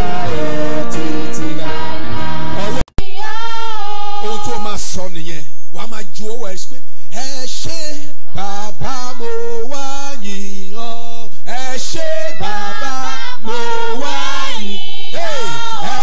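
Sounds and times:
man singing into a microphone: 0:00.0 - 0:02.0, 0:07.2 - 0:14.1.

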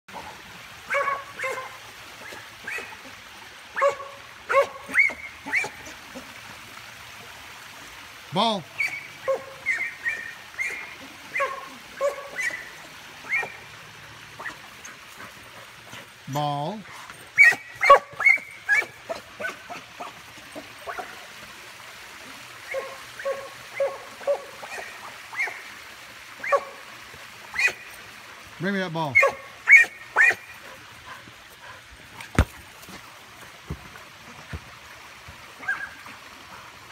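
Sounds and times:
dog yipping: 0:00.9 - 0:02.9, 0:03.8 - 0:05.8, 0:08.8 - 0:13.6, 0:14.4 - 0:14.6, 0:17.4 - 0:20.1, 0:22.7 - 0:25.6, 0:26.4 - 0:26.8, 0:27.6 - 0:27.8, 0:29.2 - 0:30.5, 0:35.6 - 0:36.0.

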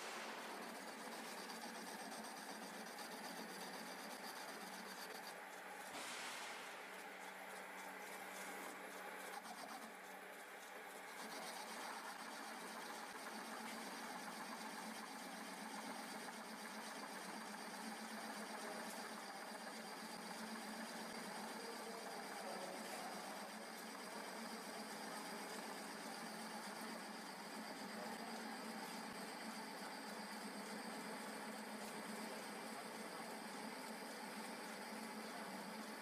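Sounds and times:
lathe humming: 0:00.0 - 0:05.8
tool cutting spinning steel bar: 0:00.0 - 0:05.8.

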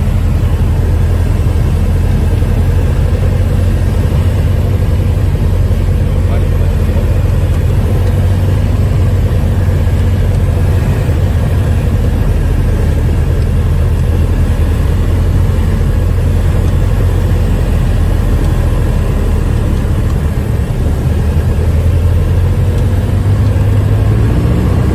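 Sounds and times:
light airplane engine drone: 0:00.0 - 0:24.9.

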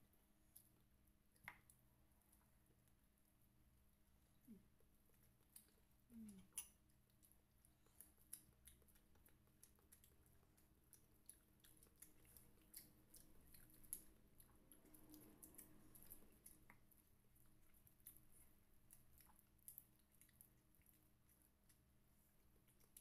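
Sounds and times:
chewing crunches: 0:05.1 - 0:21.9.

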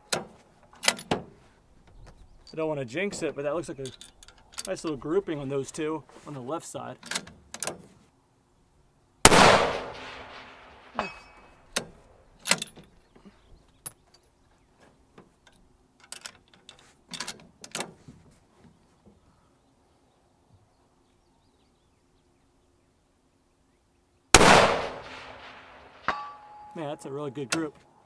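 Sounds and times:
rifle shot echoing: 0:09.2 - 0:11.0, 0:24.4 - 0:26.2.

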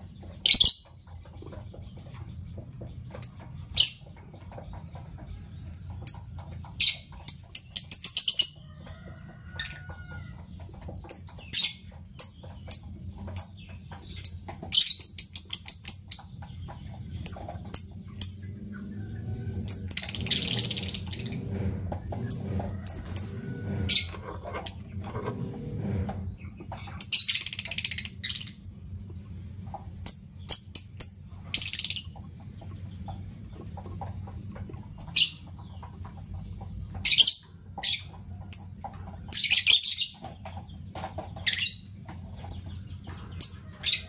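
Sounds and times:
lovebirds chirping: 0:00.0 - 0:08.6.

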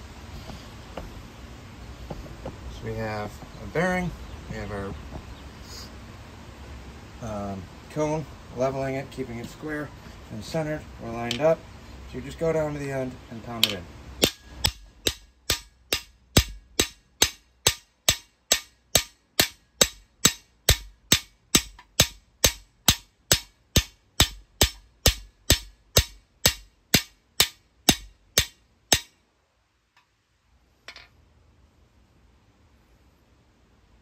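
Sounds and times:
hammer striking metal rod: 0:13.6 - 0:29.2.

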